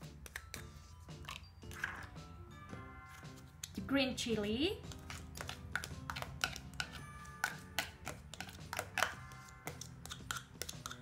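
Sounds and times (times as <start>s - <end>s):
metal spoon tapping and scraping: 0.0s - 2.1s, 4.8s - 11.0s.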